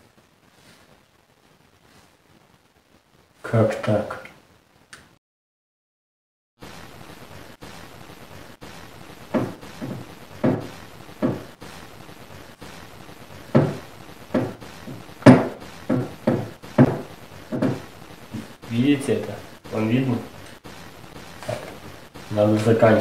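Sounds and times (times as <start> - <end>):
dull knocks: 9.3 - 11.6, 13.5 - 17.9.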